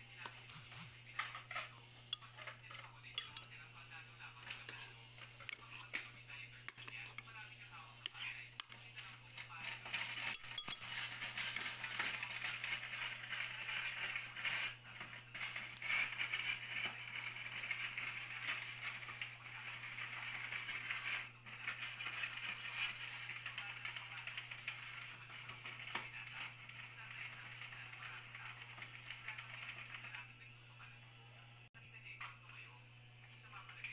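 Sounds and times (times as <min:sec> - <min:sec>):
background voices: 0:00.0 - 0:33.9
clinking on glass blender jar: 0:03.2 - 0:03.5, 0:10.3 - 0:11.0.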